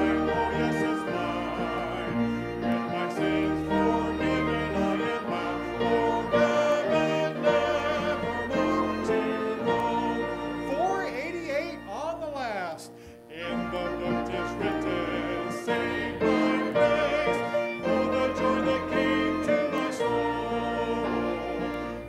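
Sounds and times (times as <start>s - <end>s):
congregation singing a hymn: 0.0s - 11.9s, 13.3s - 22.0s
instrumental accompaniment: 0.0s - 22.0s.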